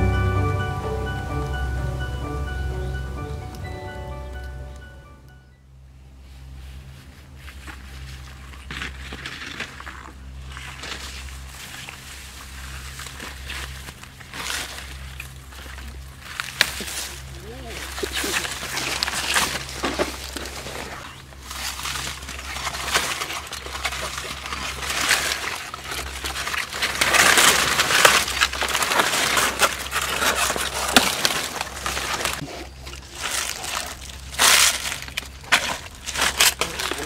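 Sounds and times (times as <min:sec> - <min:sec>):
hands sloshing in wet mud: 0:07.7 - 0:37.0.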